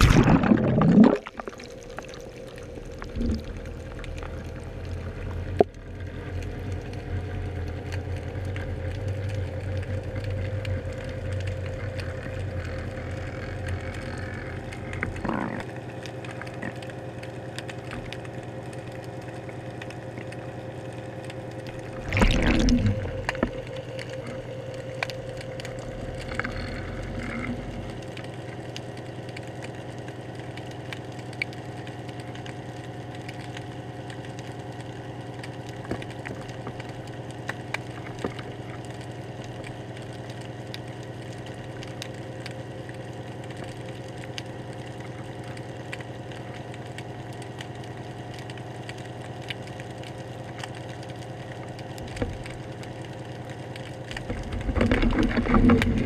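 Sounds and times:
low rumble: 0.0s - 15.7s, 21.3s - 28.7s, 54.2s - 56.0s
low underwater hum: 0.0s - 56.0s.

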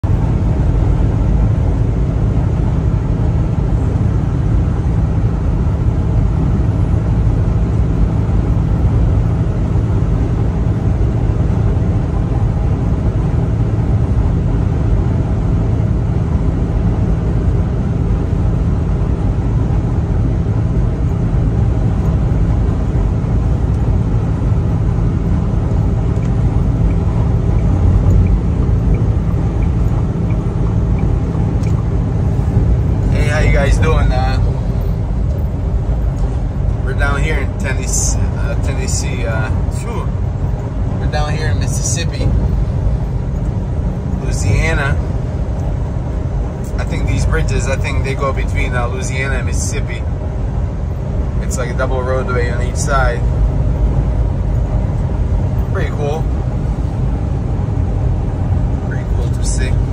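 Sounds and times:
truck engine and tyre rumble: 0.0s - 59.9s.

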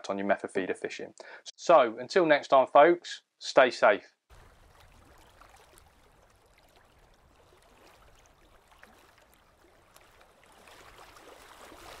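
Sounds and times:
small water splashes: 4.3s - 12.0s
water lapping and trickling: 4.3s - 12.0s.

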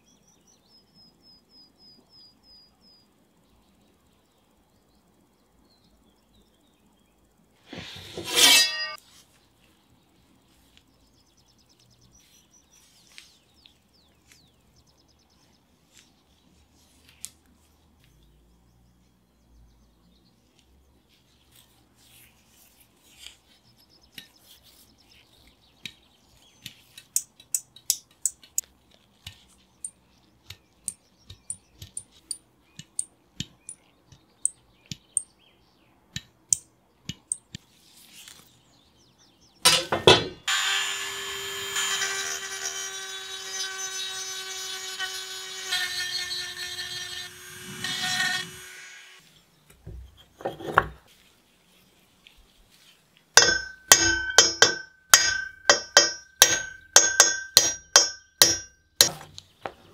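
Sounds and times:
rotary tool grinding whine: 40.5s - 49.2s
hammer striking pin punch: 53.4s - 59.3s.

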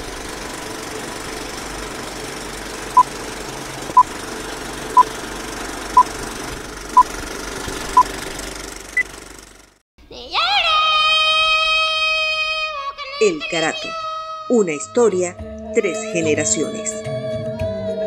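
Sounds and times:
film projector whir and rattle: 0.0s - 9.8s.

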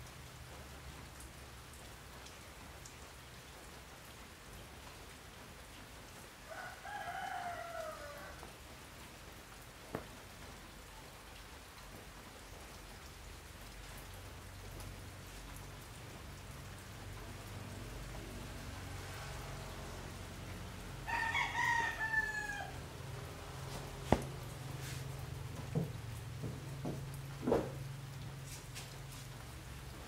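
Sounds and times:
rain hissing: 0.0s - 30.0s
rooster crowing: 6.5s - 8.5s, 21.0s - 22.9s.

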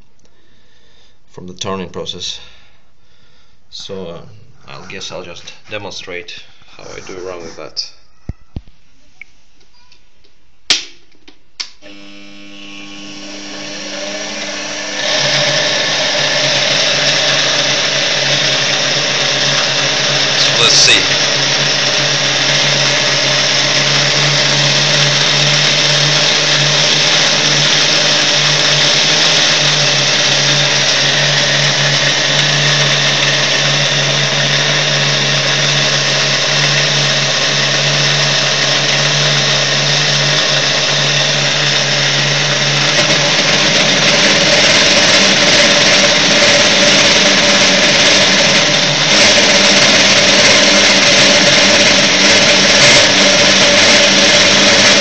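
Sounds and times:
lathe motor whine and hum: 11.8s - 55.0s
lathe tool cutting plastic: 11.9s - 55.0s.

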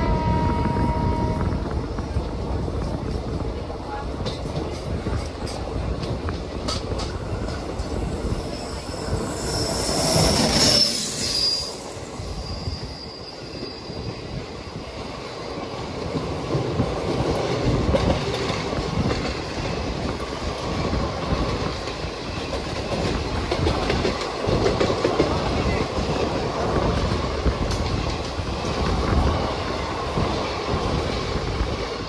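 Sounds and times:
train wheels rumbling on rails: 0.0s - 32.0s
train wheels squealing: 7.1s - 15.7s.

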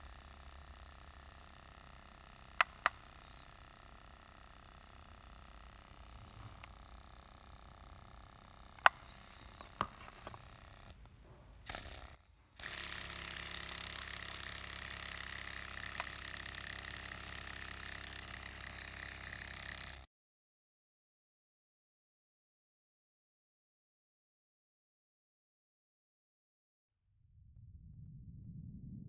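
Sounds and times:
sharp clicks: 0.0s - 20.1s
small engine running fast: 0.0s - 20.1s.

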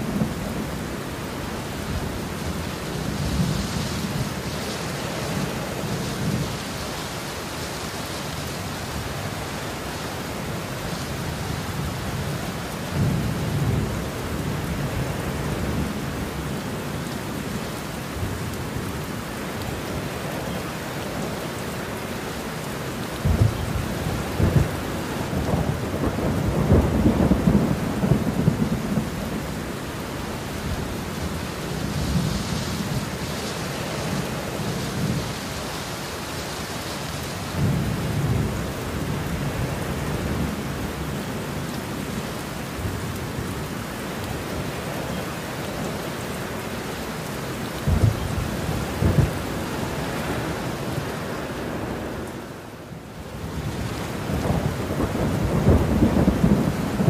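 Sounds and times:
heavy rain falling: 0.0s - 57.0s
thunder rumbling: 23.2s - 29.7s, 47.8s - 51.0s, 53.5s - 57.0s.

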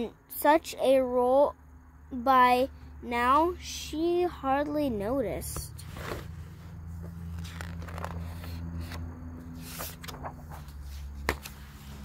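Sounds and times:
paper pages rustling: 5.8s - 12.0s.

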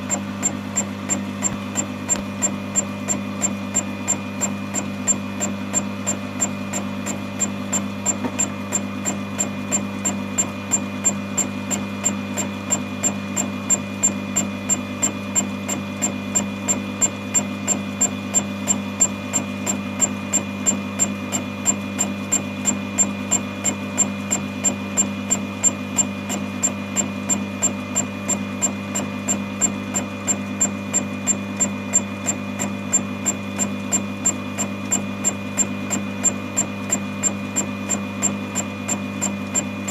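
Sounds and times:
spindle motor hum: 0.0s - 39.9s.

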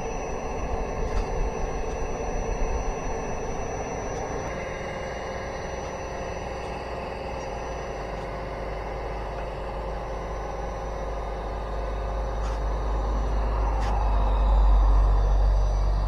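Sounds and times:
wind rumble on microphone: 0.0s - 4.8s, 12.6s - 16.0s
drone motors whining: 0.0s - 16.0s.

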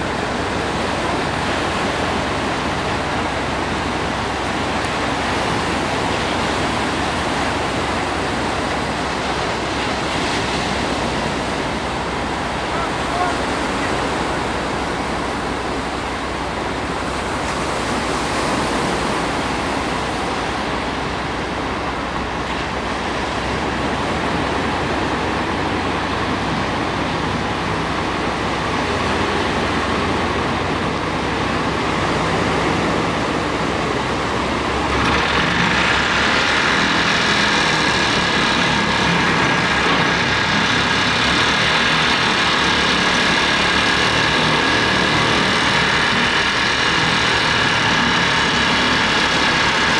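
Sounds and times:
breaking surf: 0.0s - 49.9s
excavator diesel engine running: 0.0s - 49.9s
vibratory pile driver humming: 20.4s - 49.9s.

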